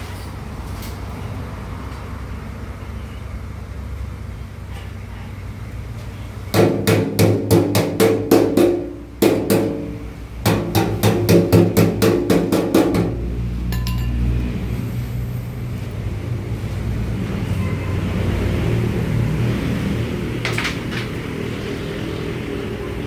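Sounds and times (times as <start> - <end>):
hammer tapping on metal: 6.6 - 14.2.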